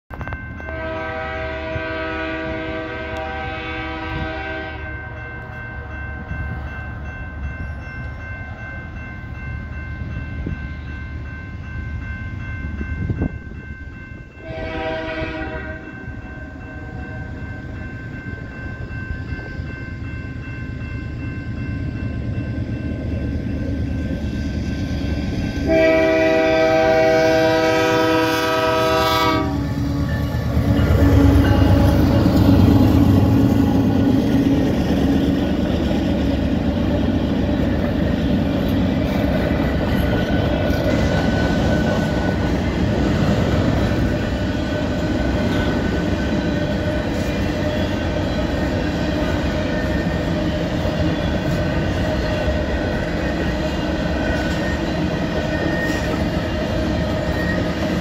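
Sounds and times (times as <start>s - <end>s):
crossing bell ringing: 0.1s - 58.0s
locomotive horn blasts: 0.6s - 5.5s, 14.4s - 16.0s, 25.6s - 32.0s.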